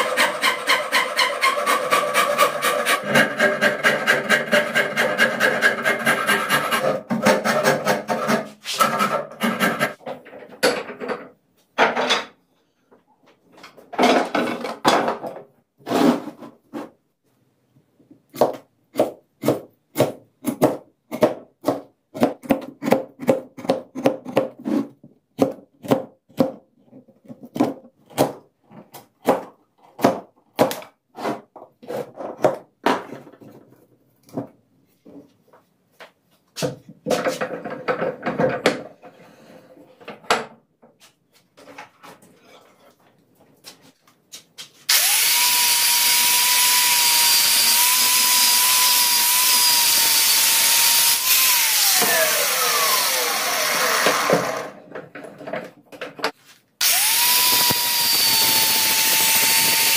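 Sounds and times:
hand tool rasping on wood: 0.0s - 10.0s.

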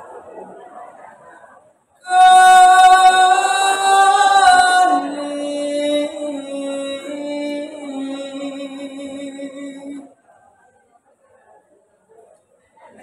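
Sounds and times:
boy singing unaccompanied: 2.1s - 10.1s.

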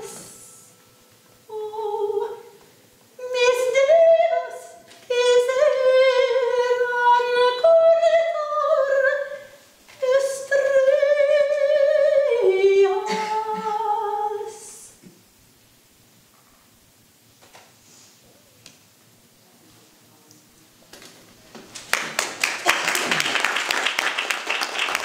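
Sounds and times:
soprano singing with vibrato: 0.0s - 15.0s.

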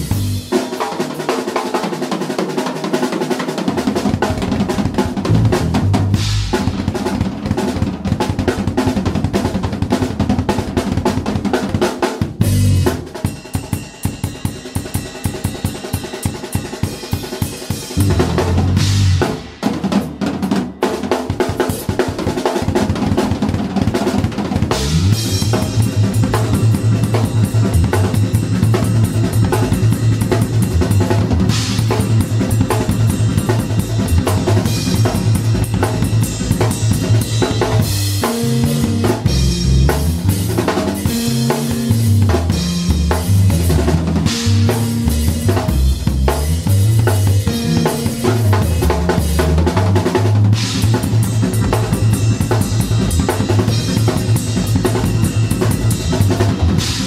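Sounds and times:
electric bass guitar: 0.0s - 0.5s, 5.2s - 6.7s, 12.4s - 13.0s, 18.0s - 19.5s, 24.7s - 57.0s
drum kit beating: 0.0s - 57.0s.

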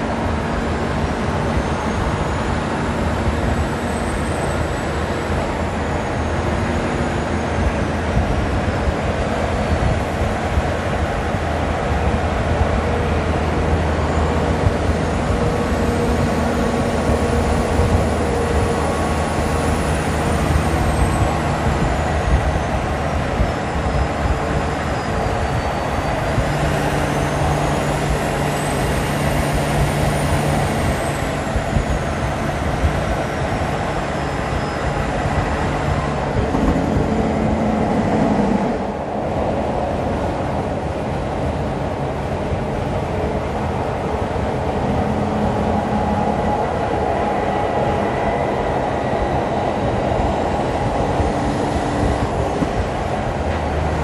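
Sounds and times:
truck diesel engine pulling: 0.0s - 54.0s
tyre and wind noise: 0.0s - 54.0s
faint high whine: 13.8s - 39.0s.

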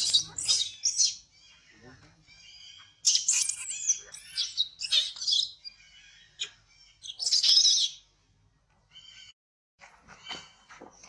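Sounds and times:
baby monkey screaming: 0.0s - 1.2s.

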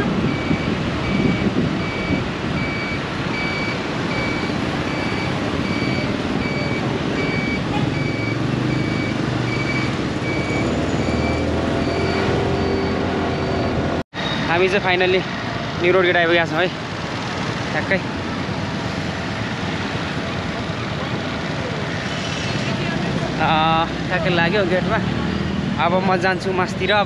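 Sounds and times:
wind rush: 0.0s - 7.7s
short electronic beep: 0.3s - 13.8s.

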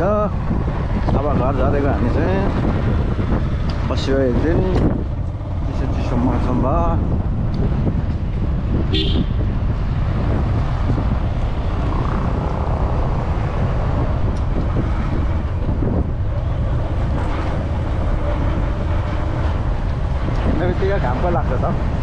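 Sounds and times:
wind buffeting microphone: 0.0s - 22.0s
motorcycle engine running: 7.0s - 20.7s.

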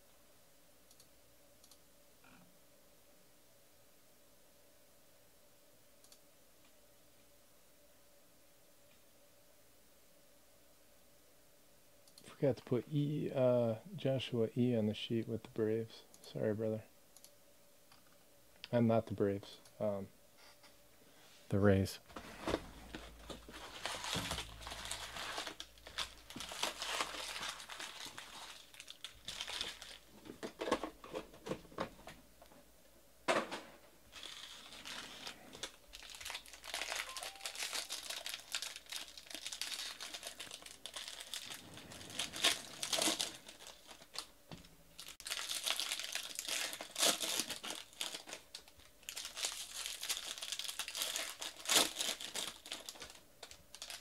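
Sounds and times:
wrappers tearing and crinkling: 22.9s - 30.3s, 34.1s - 44.3s, 45.0s - 54.0s.

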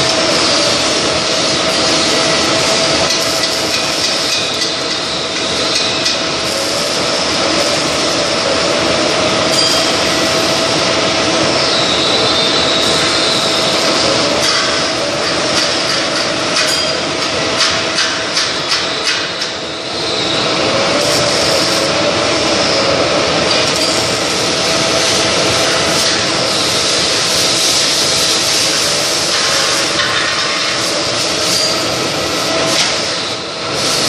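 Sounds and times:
milling machine cutting: 0.0s - 16.6s.

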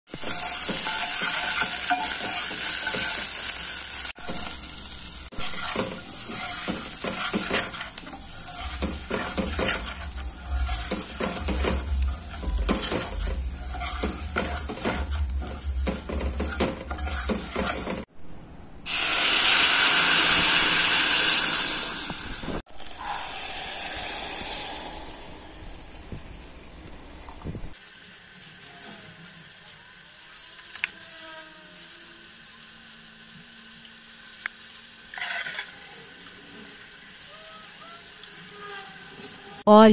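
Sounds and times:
food sizzling in hot oil: 0.1s - 18.1s, 18.9s - 26.0s, 27.7s - 39.6s
spoon scraping metal pot: 0.2s - 3.5s, 5.3s - 18.0s.

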